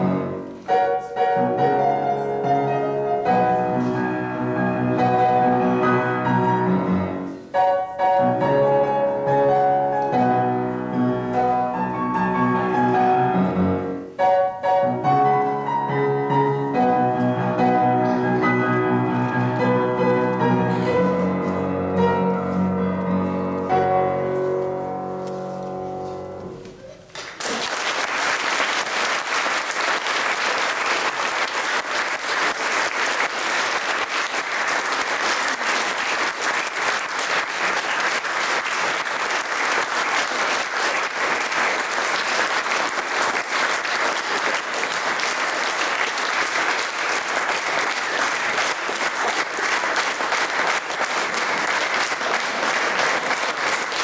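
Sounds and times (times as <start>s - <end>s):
solo piano playing: 0.0s - 26.8s
audience applause: 27.1s - 54.0s.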